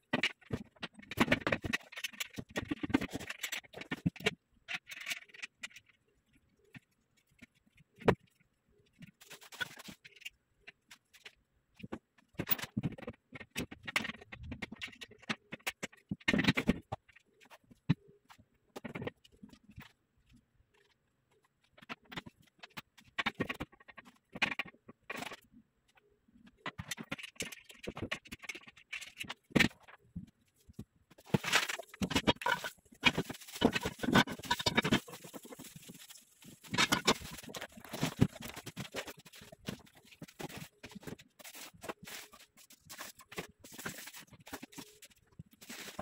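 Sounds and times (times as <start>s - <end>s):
cardboard scraping: 31.2s - 46.0s
plastic wrapping crinkling: 31.2s - 46.0s.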